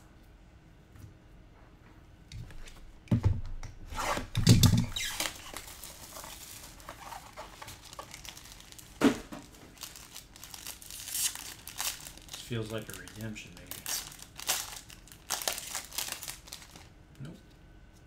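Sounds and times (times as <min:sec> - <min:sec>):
cards and packaging rustling: 0:04.8 - 0:16.9.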